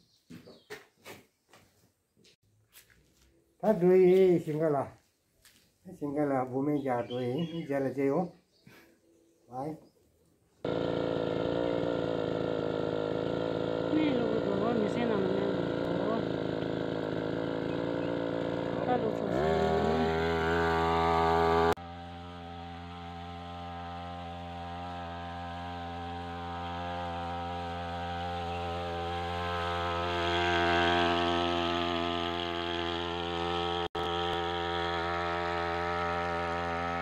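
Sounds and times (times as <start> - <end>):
small petrol engine running fast: 10.6 - 37.0.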